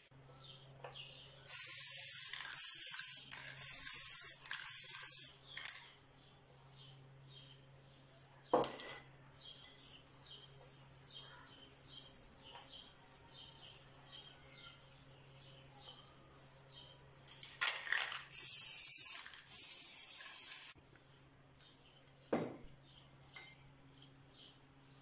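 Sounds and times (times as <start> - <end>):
aerosol spray can hissing: 1.5 - 5.4, 18.0 - 20.8.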